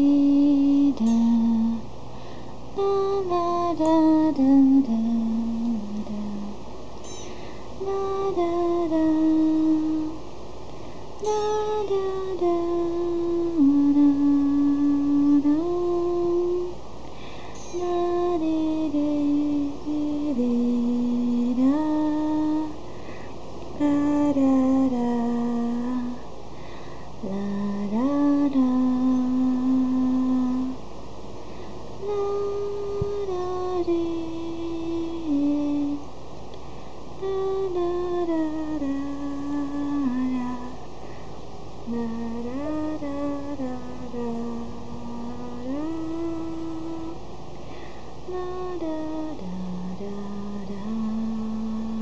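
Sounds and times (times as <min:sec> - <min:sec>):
slow melody of voice-like notes: 0:00.0 - 0:01.8, 0:02.8 - 0:10.2
slow tune of held notes: 0:00.0 - 0:26.3, 0:27.2 - 0:30.8, 0:31.5 - 0:36.6, 0:37.2 - 0:40.9, 0:41.8 - 0:52.0.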